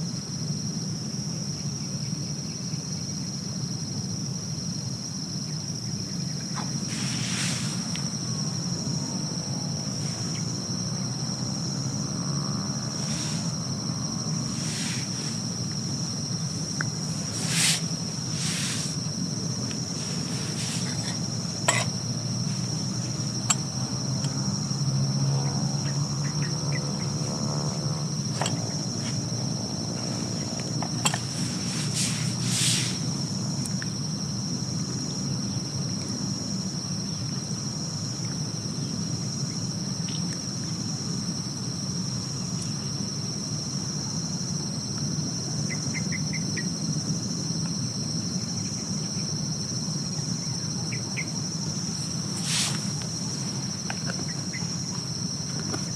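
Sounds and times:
insects chorus: 0.0 - 55.9
distant traffic rumble: 4.7 - 40.0, 40.6 - 55.9
distant engine droning: 6.0 - 36.2, 48.2 - 55.9.

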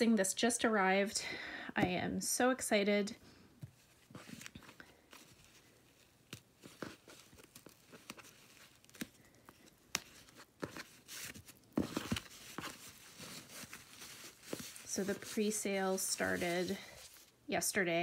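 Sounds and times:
soft rustling: 3.6 - 17.4.

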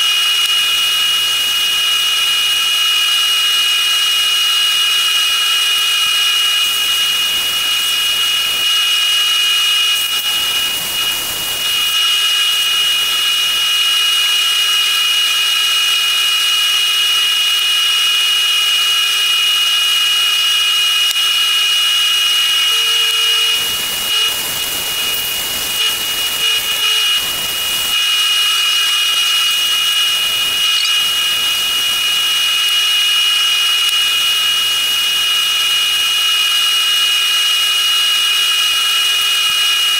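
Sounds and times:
wood lathe whining: 0.0 - 39.9
tool scraping spinning wood: 22.2 - 34.1.

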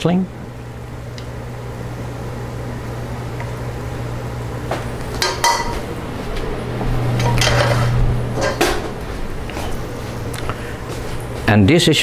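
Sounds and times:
metal spatula scraping a pan: 7.2 - 8.6.

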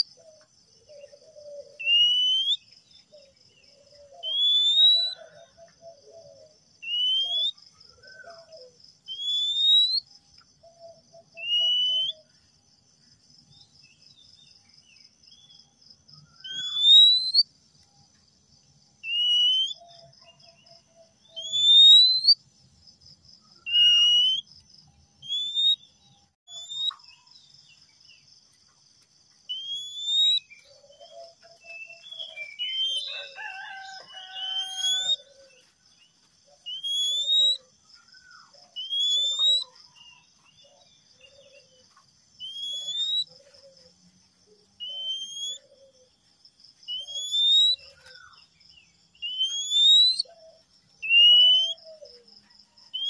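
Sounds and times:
bird singing rising whistles: 1.4 - 2.6, 4.0 - 5.3, 6.0 - 10.1, 11.3 - 12.3, 16.3 - 17.5, 19.0 - 20.1, 21.2 - 22.4, 23.5 - 24.5, 25.2 - 25.8, 26.5 - 27.1, 29.5 - 35.4, 36.6 - 37.7, 38.3 - 40.2, 42.4 - 43.3, 44.8 - 45.7, 46.9 - 48.4, 49.2 - 50.4, 51.0 - 52.1.

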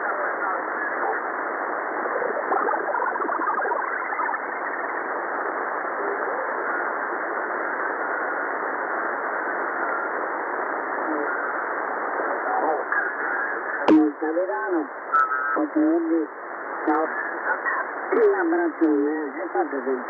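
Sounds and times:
garbled radio voices: 0.0 - 20.0
radio band noise hiss: 0.0 - 20.0
faint radio whistles: 15.1 - 15.6.

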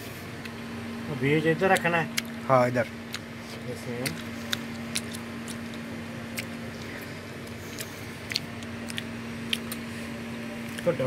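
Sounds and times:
steady low hum: 0.0 - 11.0
small clicks of hands working fruit: 4.0 - 9.8.

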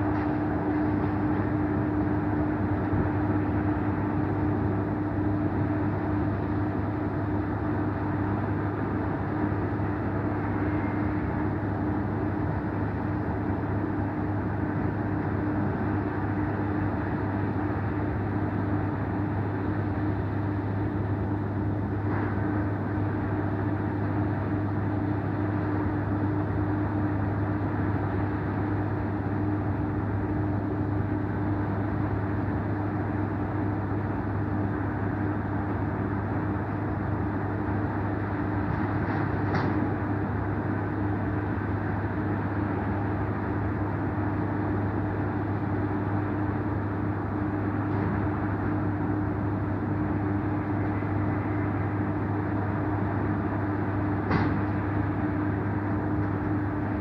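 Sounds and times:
construction machinery drone: 0.0 - 57.0
road traffic: 0.0 - 57.0.

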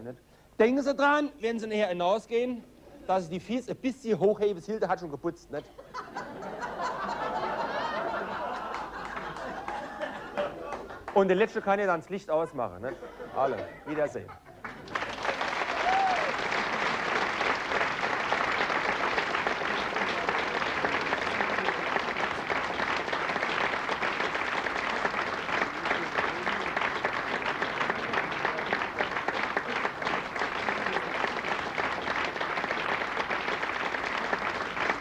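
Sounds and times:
audience applauding: 6.6 - 11.6, 14.6 - 35.0.

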